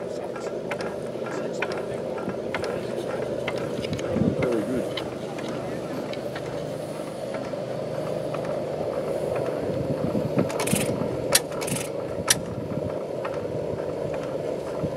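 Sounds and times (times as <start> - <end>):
stationary engine clattering: 0.0 - 14.9
sharp metallic clicks: 10.5 - 12.5.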